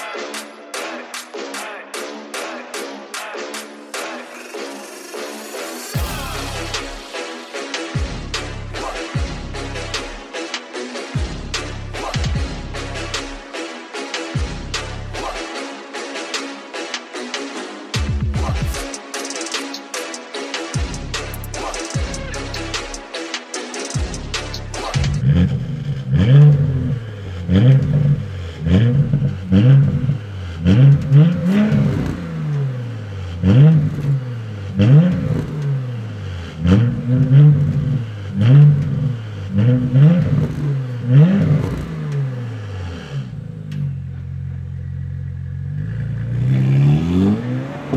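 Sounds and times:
car engine revving: 18.7 - 47.9
car engine idling: 24.0 - 47.9.

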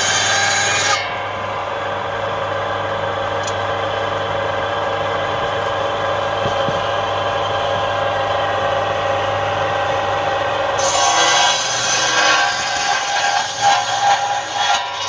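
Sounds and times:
saw blade cutting wood: 0.0 - 1.4, 10.8 - 15.0
circular saw running: 0.0 - 15.0.

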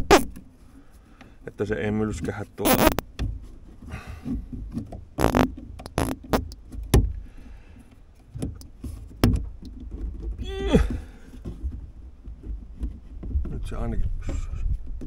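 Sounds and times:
zip tie pulled tight: 0.0 - 0.3, 2.6 - 3.0, 5.2 - 6.6.

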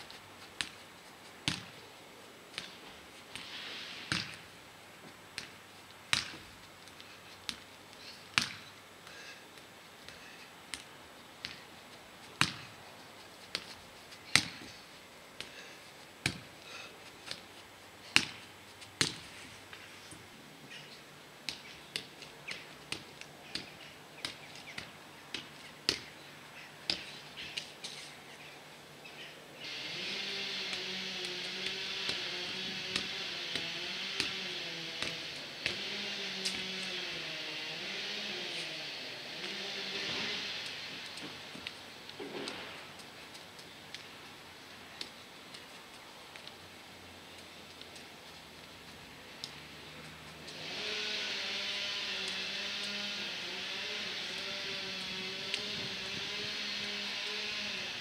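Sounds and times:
steady hiss with wavering hum: 0.0 - 58.0.

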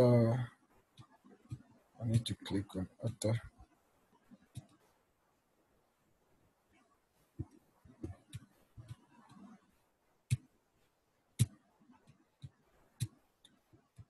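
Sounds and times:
computer mouse clicks: 4.4 - 4.8, 11.4 - 14.0.

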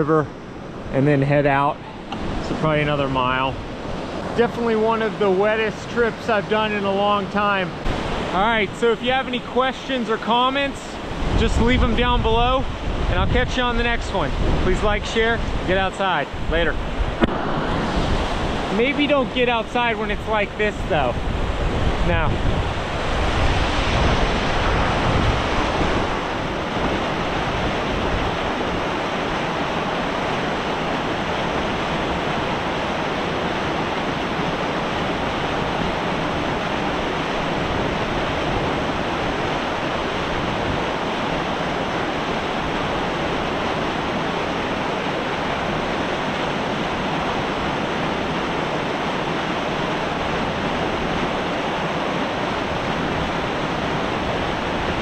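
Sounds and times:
wind buffeting microphone: 11.0 - 55.0
stream rushing over rocks: 12.8 - 55.0.

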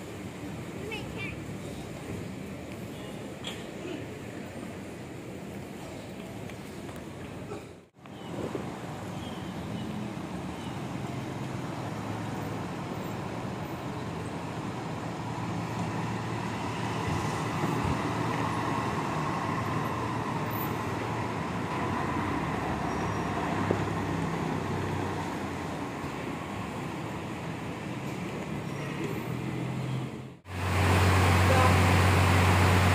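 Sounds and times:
bus diesel engine running: 29.3 - 32.9.

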